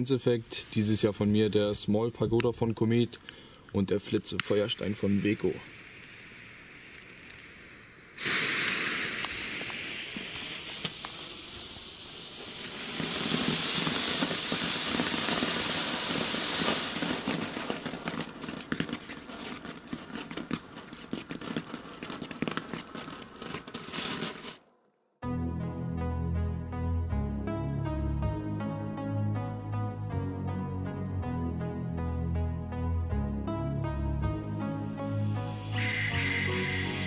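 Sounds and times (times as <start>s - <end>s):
fireworks fountain hissing and crackling: 2.9s - 24.7s, 35.5s - 37.0s.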